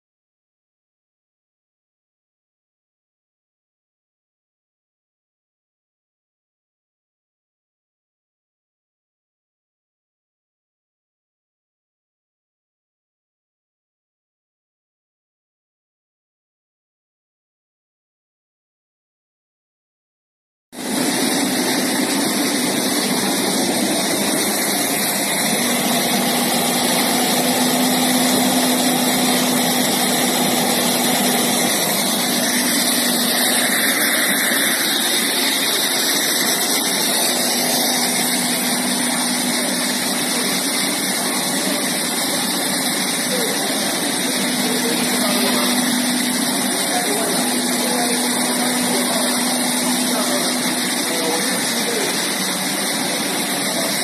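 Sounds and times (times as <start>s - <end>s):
air compressor hissing: 20.8s - 54.0s.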